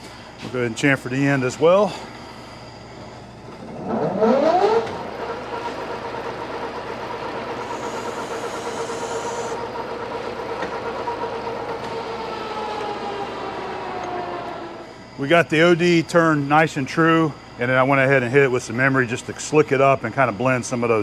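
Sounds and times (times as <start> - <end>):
lathe gear whine: 0.0 - 21.0
tool cutting steel hiss: 7.6 - 9.6.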